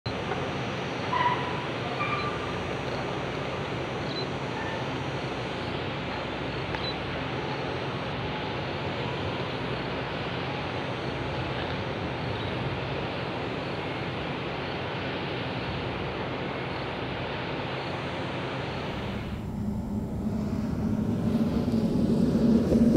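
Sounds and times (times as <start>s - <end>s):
outdoor ambient hiss: 0.1s - 22.9s
faint low hum: 17.7s - 22.9s.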